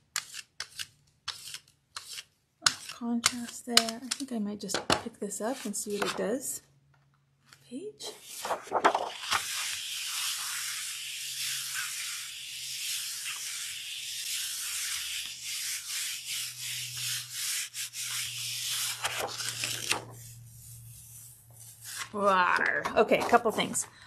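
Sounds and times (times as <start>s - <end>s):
hands rubbing paper: 8.2s - 23.8s.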